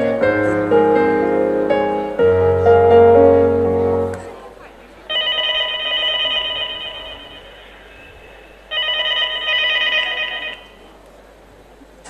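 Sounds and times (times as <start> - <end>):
telephone ringing: 5.1 - 11.0.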